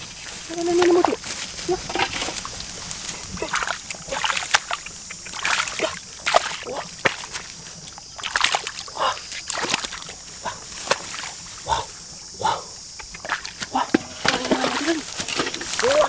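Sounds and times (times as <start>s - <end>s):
hands splashing in muddy water: 0.6s - 11.6s.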